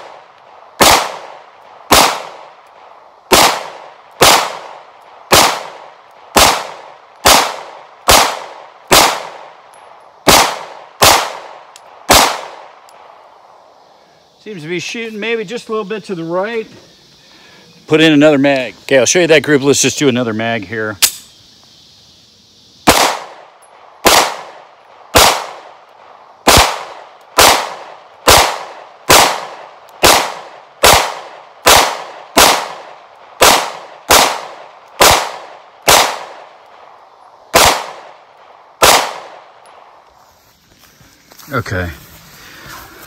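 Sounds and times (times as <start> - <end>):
pistol shots echoing: 0.0 - 13.2, 22.8 - 40.0.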